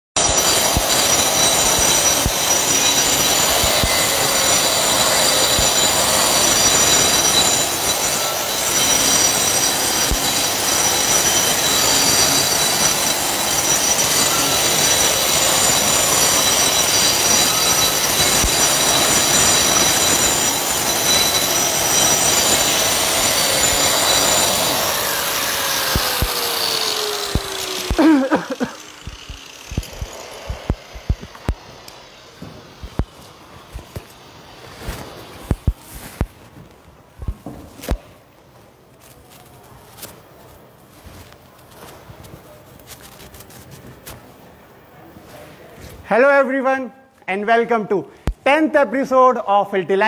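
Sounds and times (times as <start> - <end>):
high-pitched squeal: 0.2 - 36.2
concrete grinder grinding: 0.2 - 36.4.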